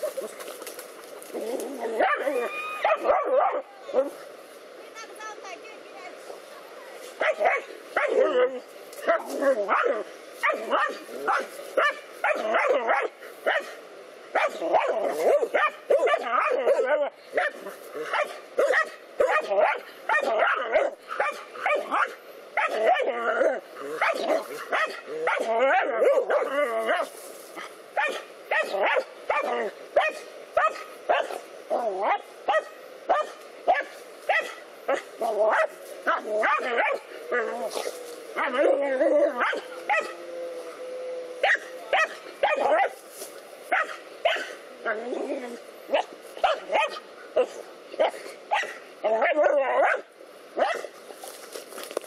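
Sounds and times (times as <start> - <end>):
dogs barking and yelping: 1.2 - 4.2, 7.2 - 43.0, 43.7 - 50.9
dogs yelping and whining: 1.3 - 4.1, 18.6 - 27.0, 35.2 - 42.9.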